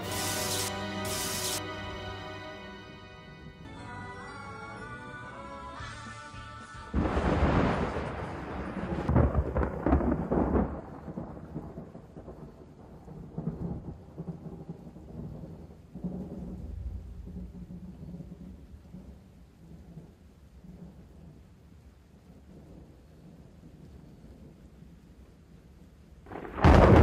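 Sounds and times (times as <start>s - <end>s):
thunder rumbling: 7.0s - 25.1s, 26.2s - 27.0s.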